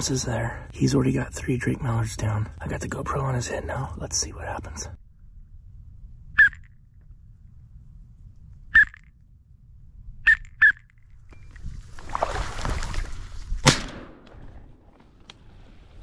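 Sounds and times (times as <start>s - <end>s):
dry reeds rustling: 11.4s - 13.7s.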